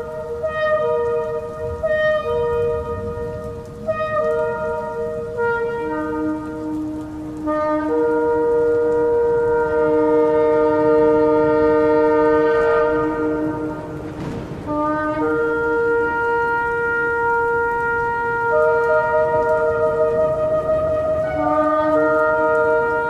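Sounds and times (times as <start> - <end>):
shofar blasts: 0.0 - 23.0.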